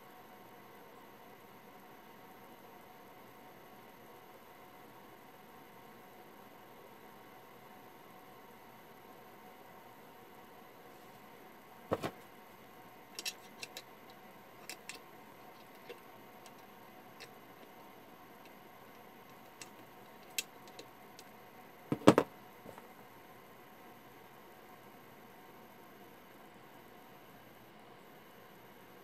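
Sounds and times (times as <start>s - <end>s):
small clicks and taps: 13.2s - 15.0s, 19.3s - 21.3s.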